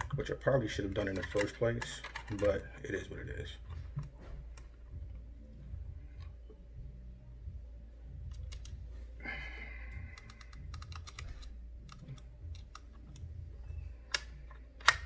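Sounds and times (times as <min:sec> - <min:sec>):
screwdriver clicking on metal: 0:10.2 - 0:13.3.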